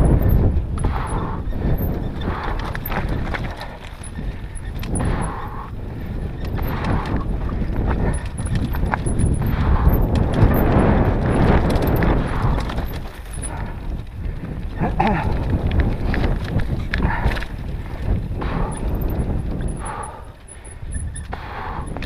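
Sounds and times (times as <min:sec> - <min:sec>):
mountain bike rattling downhill: 0:00.0 - 0:22.0.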